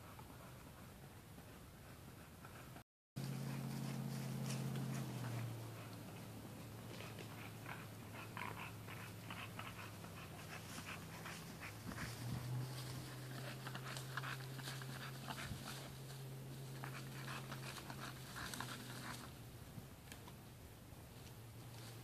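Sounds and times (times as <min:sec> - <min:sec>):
dog panting: 0:00.0 - 0:19.4
low hum: 0:03.2 - 0:21.9.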